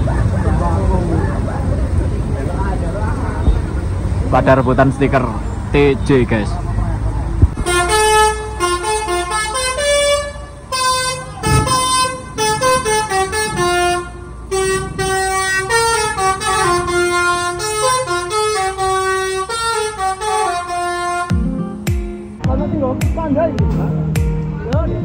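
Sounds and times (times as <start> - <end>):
musical air horn tune: 7.6 - 21.8.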